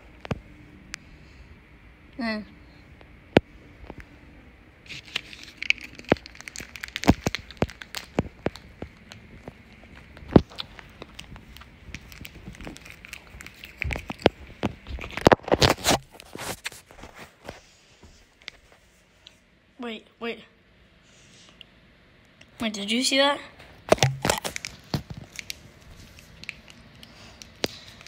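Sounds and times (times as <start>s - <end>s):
camera handling noise: 23.9s - 26.8s.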